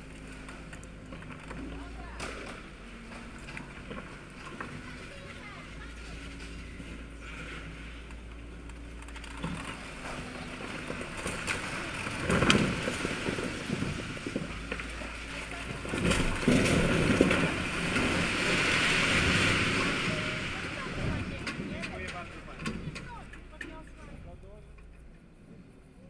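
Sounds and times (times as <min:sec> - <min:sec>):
falling rubble: 0:00.0 - 0:24.0
excavator engine running: 0:00.0 - 0:26.0
masonry crashing down: 0:09.3 - 0:23.3.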